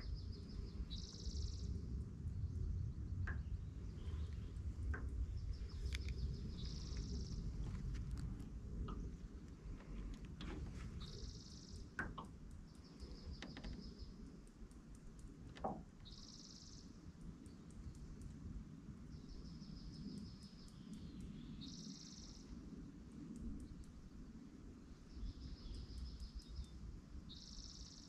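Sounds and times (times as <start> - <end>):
songbird buzzy trills: 0.0 - 22.7
wind and water rumble: 0.0 - 27.9.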